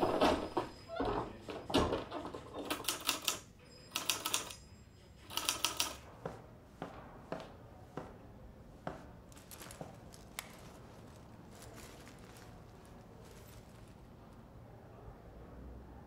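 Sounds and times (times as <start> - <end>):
typewriter key strikes: 2.6 - 4.6, 5.3 - 6.0.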